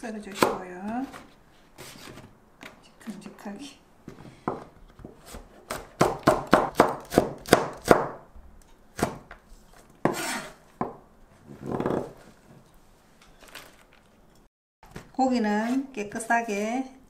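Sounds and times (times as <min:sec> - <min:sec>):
knife scraping board: 0:01.0 - 0:02.3, 0:10.0 - 0:10.6
knife chopping on plastic board: 0:04.5 - 0:08.2.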